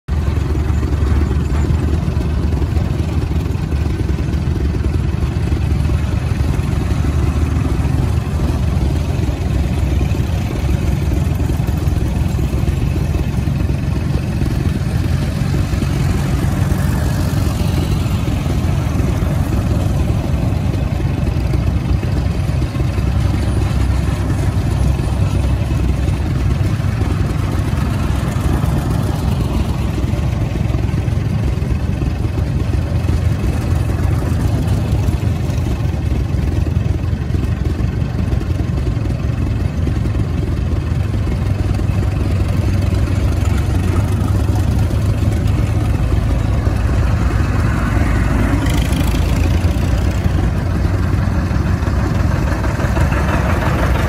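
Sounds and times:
tractor engines rumbling: 0.0 - 54.0.

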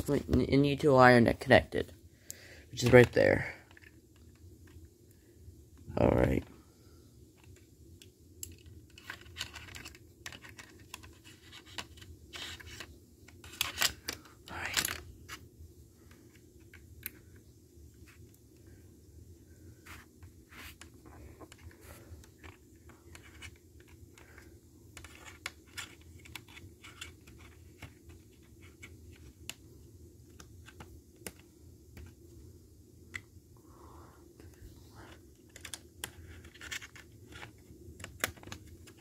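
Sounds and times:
clicks and scratching of plastic: 7.4 - 15.4, 19.8 - 32.2, 34.4 - 39.0.

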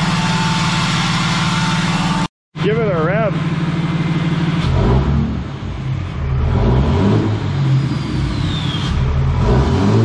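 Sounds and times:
diesel engine revving: 0.0 - 10.0
faint falling whistle: 7.9 - 9.0.

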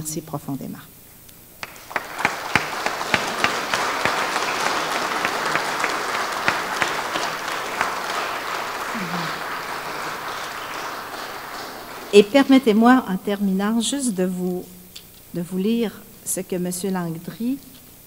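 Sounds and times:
sharp single claps: 1.6 - 12.3
audience applauding: 1.6 - 13.0.

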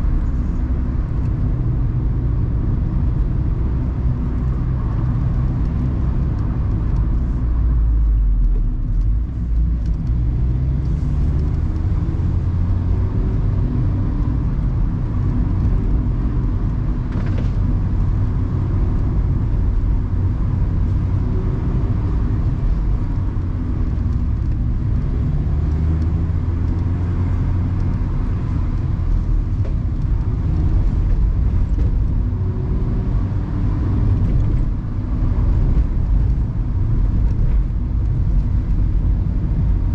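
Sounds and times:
wind and road noise: 0.0 - 39.9
car engine revving: 9.5 - 39.9.

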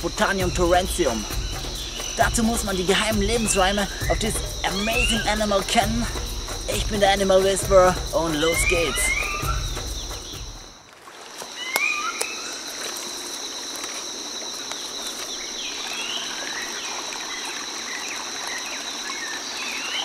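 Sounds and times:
high-pitched insect drone: 0.0 - 10.8
bird chirps: 0.4 - 6.9, 8.3 - 10.6.

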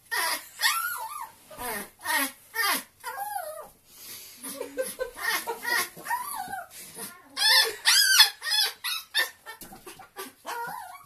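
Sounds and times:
small dog crying: 0.1 - 3.7, 5.2 - 9.6, 10.4 - 11.0.

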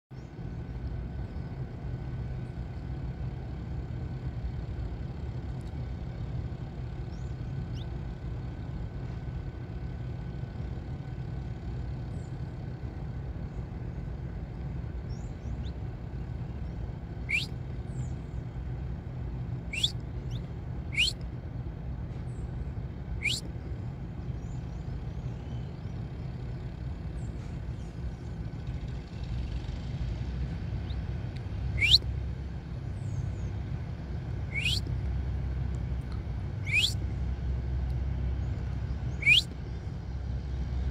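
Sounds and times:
low traffic rumble: 0.1 - 40.9
faint bird notes: 14.6 - 18.4, 19.6 - 21.2, 23.2 - 28.3, 30.8 - 32.2, 34.4 - 35.0, 36.6 - 37.1, 38.3 - 40.0
finches chirping: 16.6 - 18.1, 19.7 - 21.2, 23.2 - 23.5, 31.7 - 32.0, 34.5 - 34.9, 36.6 - 37.0, 38.4 - 39.5.

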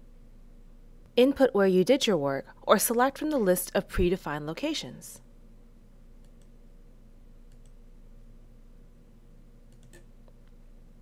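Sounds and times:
low steady hum: 0.0 - 11.0
computer mouse clicks: 6.2 - 6.6, 7.5 - 7.8, 9.7 - 10.6.

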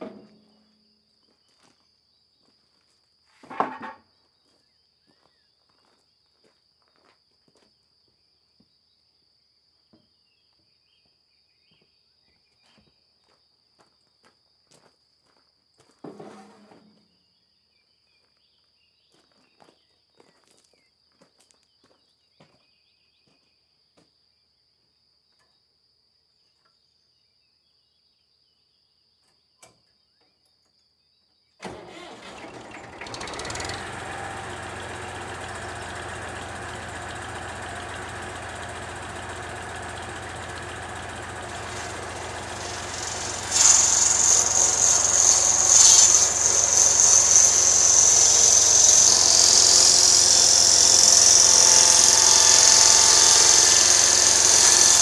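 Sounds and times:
tractor diesel engine running: 31.6 - 55.0
circular saw blade whine: 32.3 - 55.0.

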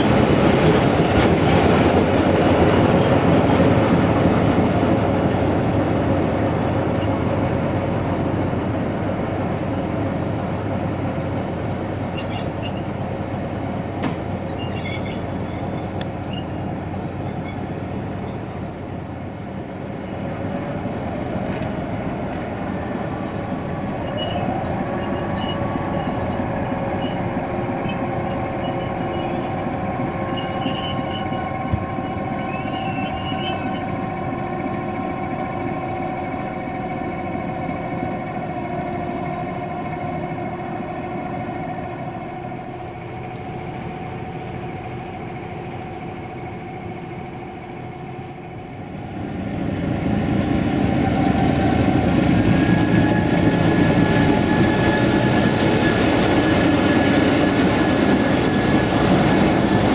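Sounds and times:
diesel locomotive running: 0.0 - 59.9
high metallic squeal: 12.2 - 13.3, 14.5 - 18.9, 24.0 - 34.0, 36.0 - 36.5.

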